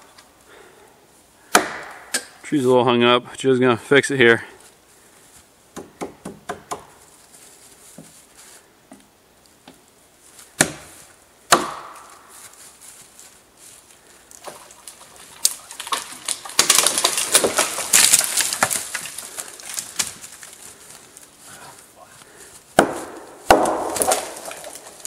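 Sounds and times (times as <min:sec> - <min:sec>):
axe chopping tree trunk: 0:01.5 - 0:02.4, 0:05.7 - 0:07.0, 0:10.5 - 0:12.2, 0:15.8 - 0:19.2, 0:22.8 - 0:25.0
wood crackling and cracking: 0:13.9 - 0:25.0.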